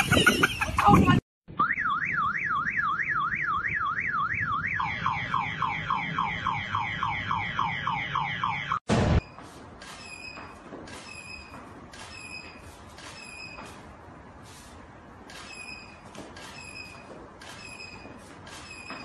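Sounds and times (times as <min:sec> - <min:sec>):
car alarm siren warbling: 0:01.5 - 0:08.8.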